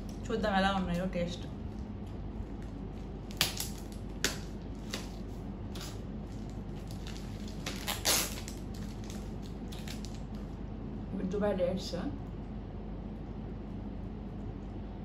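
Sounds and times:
plastic packaging crinkling: 1.7 - 10.6.

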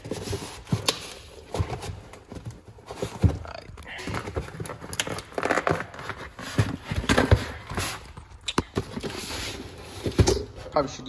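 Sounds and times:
tape and cardboard tearing: 4.4 - 10.4.

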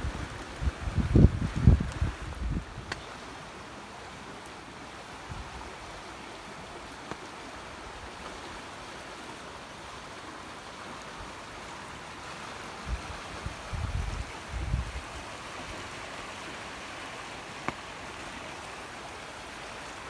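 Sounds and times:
floodwater rushing: 0.0 - 20.0.

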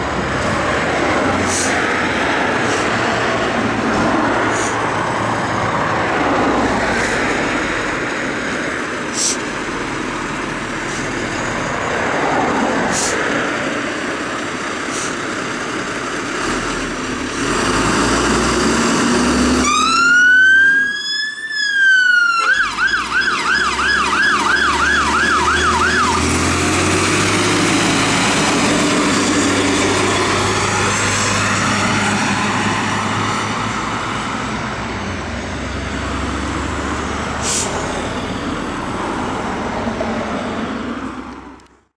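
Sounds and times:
fire engine diesel engine: 0.0 - 41.9
siren wailing and yelping: 19.6 - 26.2.

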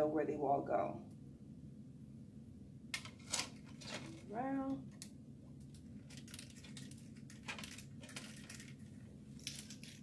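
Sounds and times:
faint low room hum: 0.0 - 10.0
plastic sticks clicking and rustling: 4.9 - 10.0.

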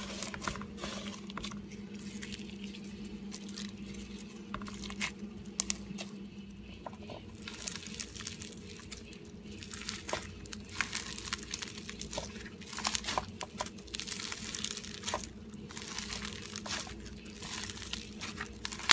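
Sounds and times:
slime beads crackling when squeezed: 7.4 - 18.9.

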